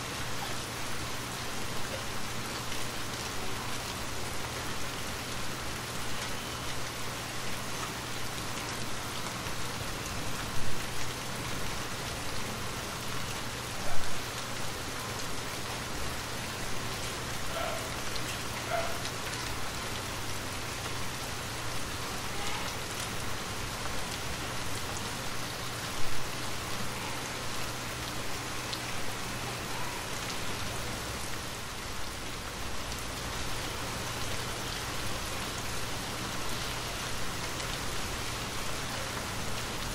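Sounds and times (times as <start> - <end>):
rain pattering on a surface: 0.0 - 39.9.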